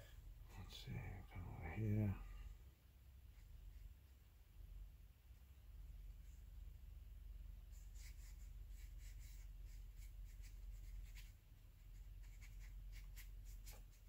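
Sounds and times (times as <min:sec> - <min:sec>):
steady low hum: 0:00.0 - 0:14.0
brush stroking on paper: 0:07.6 - 0:14.0.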